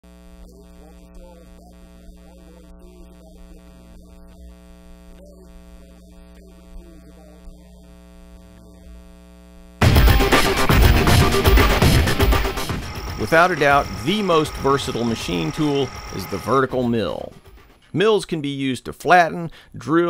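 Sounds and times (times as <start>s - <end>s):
electrical mains hum: 0.1s - 9.8s, 10.9s - 18.0s
loud music: 9.8s - 17.9s.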